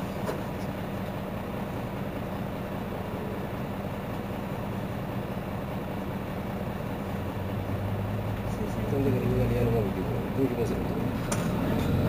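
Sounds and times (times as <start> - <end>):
bus engine idling: 0.0 - 12.0.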